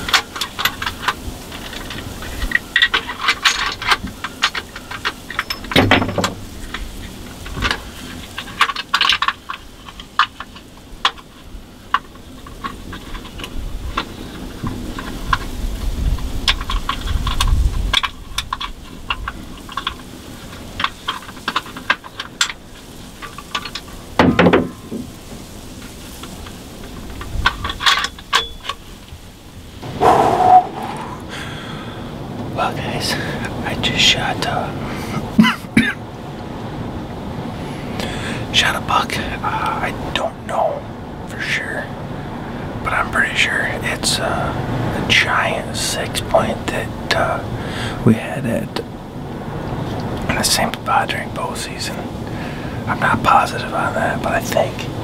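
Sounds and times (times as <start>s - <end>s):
gear clicking and rattling: 0.0s - 31.6s
loud thumps: 5.7s - 6.6s.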